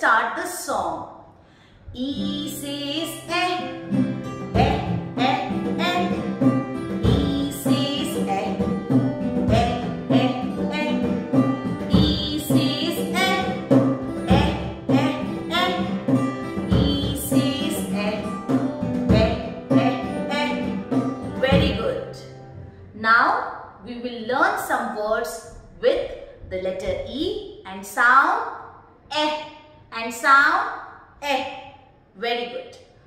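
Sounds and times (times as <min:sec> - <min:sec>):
woman singing: 0:02.0 - 0:03.8, 0:04.5 - 0:22.2
plucked-string accompaniment: 0:02.1 - 0:22.9.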